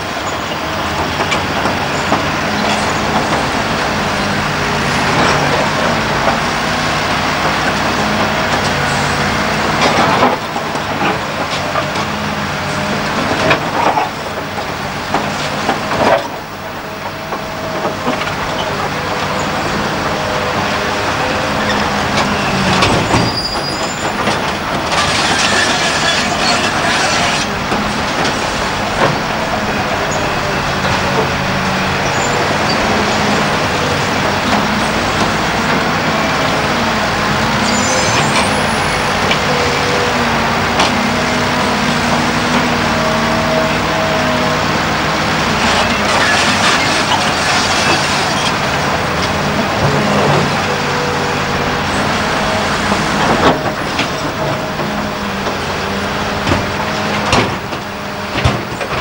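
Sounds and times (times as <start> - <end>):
diesel engine under load: 0.0 - 59.0
bucket scraping through rock: 21.7 - 29.3.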